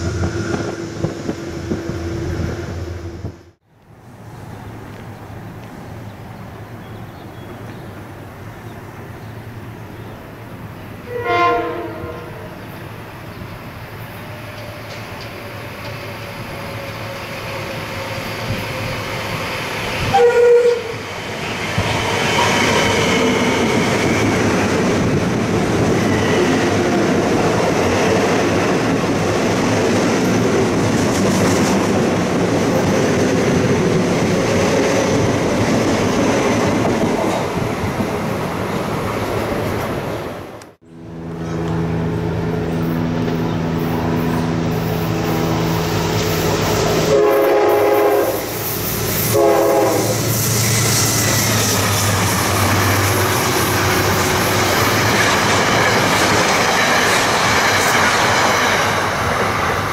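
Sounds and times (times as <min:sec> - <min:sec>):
train wheels rumbling on rail: 0:00.0 - 0:03.6, 0:10.5 - 0:59.9
train horn blasts: 0:11.1 - 0:12.5, 0:20.0 - 0:21.0, 0:46.6 - 0:50.4.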